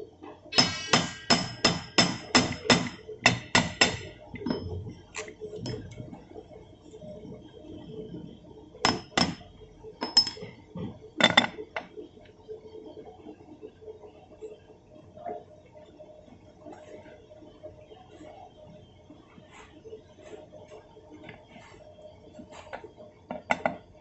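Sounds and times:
ringing metal-on-metal strikes: 0:00.6 - 0:04.9.

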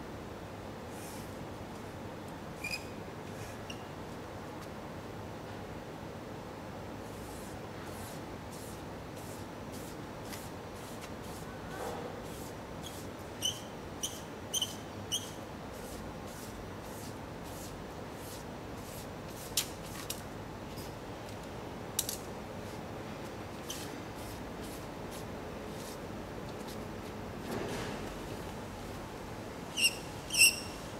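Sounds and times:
background hiss: 0:00.0 - 0:30.9.

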